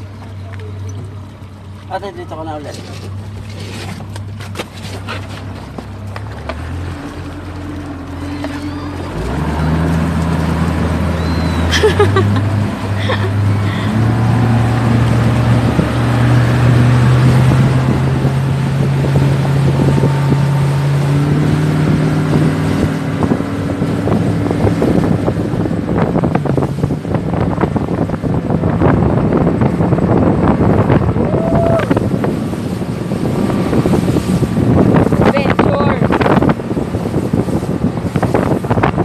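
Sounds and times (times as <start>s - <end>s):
outboard motor running: 0.0s - 39.0s
wind and water rushing: 0.0s - 39.0s.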